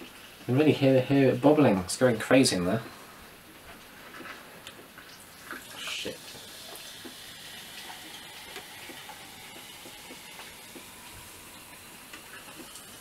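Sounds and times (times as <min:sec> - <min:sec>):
bubbles fizzing and popping: 0:04.8 - 0:13.0
sparkling water pouring into glass: 0:05.2 - 0:13.0.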